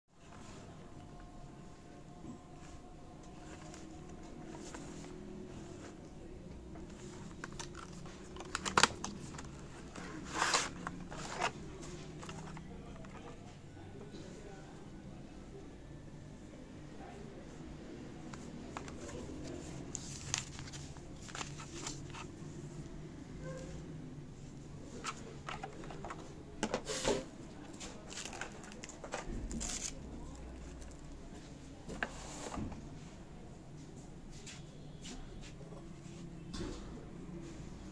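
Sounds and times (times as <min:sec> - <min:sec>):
packaging rustling: 0:06.9 - 0:13.3, 0:18.4 - 0:22.4, 0:27.8 - 0:31.0.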